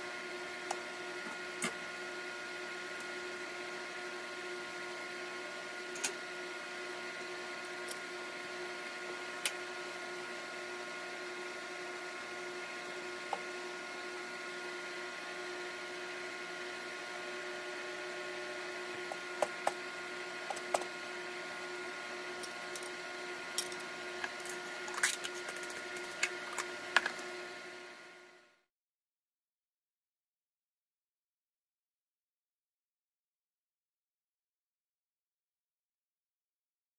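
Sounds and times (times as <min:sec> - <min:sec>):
mechanical hum: 0:00.0 - 0:28.7.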